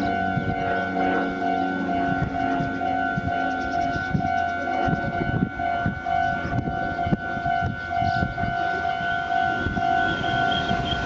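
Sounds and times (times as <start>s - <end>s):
approaching train rumbling: 0.0s - 11.0s
level crossing warning bell: 0.0s - 11.0s.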